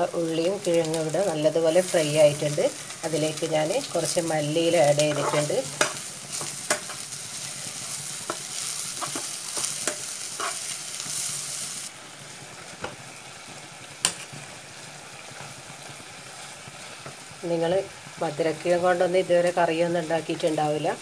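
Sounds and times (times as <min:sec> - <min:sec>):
food sizzling in a pan: 0:00.0 - 0:21.0
spatula scraping a pan: 0:04.8 - 0:07.1, 0:08.2 - 0:11.4.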